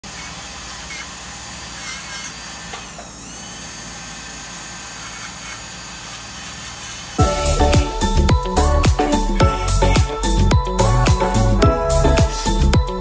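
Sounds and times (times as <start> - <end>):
dental drill whirring: 0.0 - 7.2.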